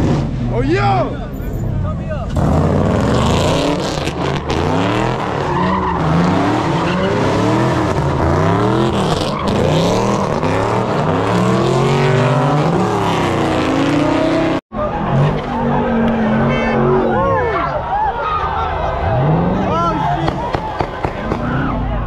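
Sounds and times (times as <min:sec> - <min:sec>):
car engine revving: 0:01.7 - 0:17.2.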